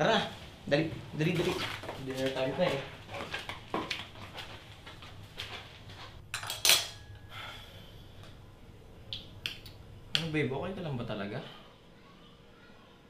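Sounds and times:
cutlery clatter: 6.4s - 7.1s
cutlery clinking on plates: 6.4s - 7.2s.

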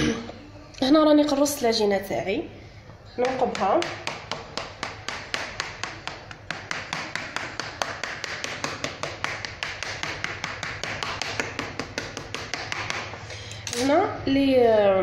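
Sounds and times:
fork tapping on metal tray: 3.2s - 13.1s.

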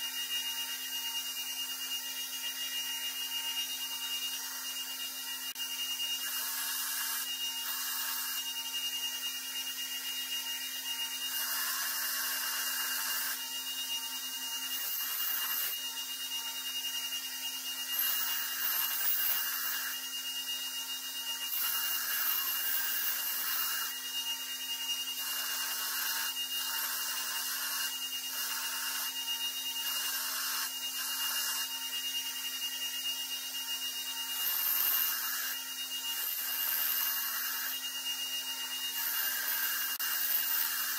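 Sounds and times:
belt grinder humming and whining: 0.0s - 40.9s
metal grinding on abrasive belt: 11.2s - 13.4s, 14.7s - 15.8s, 17.9s - 20.0s, 21.4s - 24.0s, 25.0s - 29.1s, 29.8s - 31.7s, 34.3s - 40.9s.

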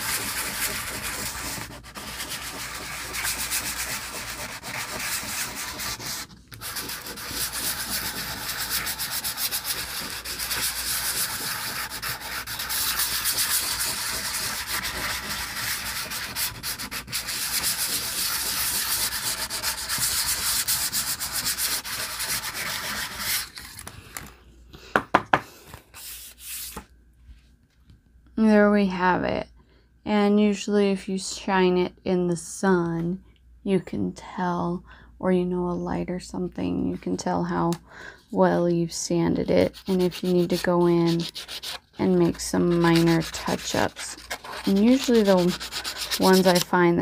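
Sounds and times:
nail file buffing card: 42.7s - 46.7s.

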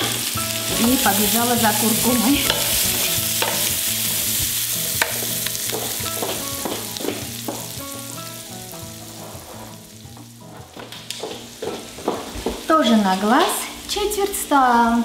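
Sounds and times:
soft background music: 0.0s - 15.0s
vegetables sizzling in a skillet: 0.0s - 15.0s
wooden spatula scraping a skillet: 8.8s - 12.7s.

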